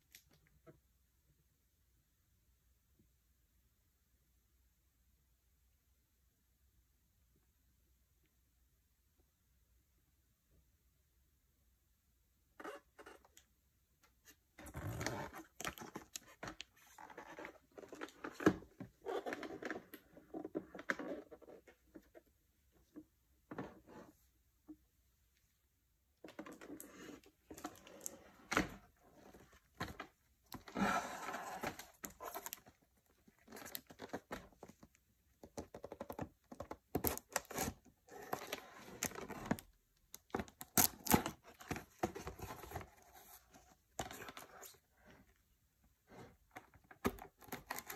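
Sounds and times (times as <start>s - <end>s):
cardboard box rubbing and scraping: 30.7s - 31.6s.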